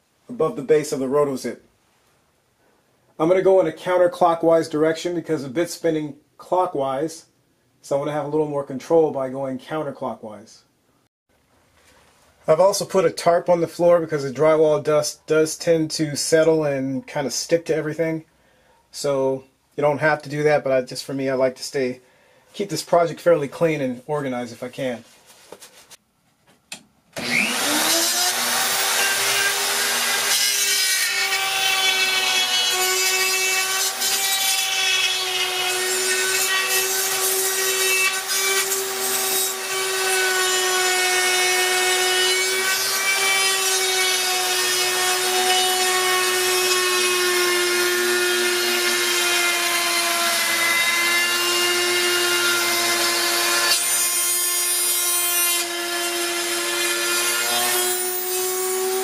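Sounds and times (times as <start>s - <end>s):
spiral saw whining: 27.2s - 30.3s.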